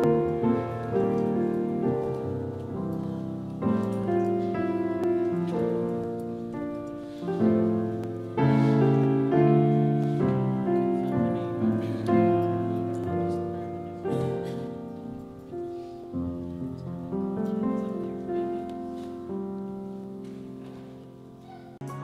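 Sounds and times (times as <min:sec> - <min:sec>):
slow piano chords: 0:00.0 - 0:22.0.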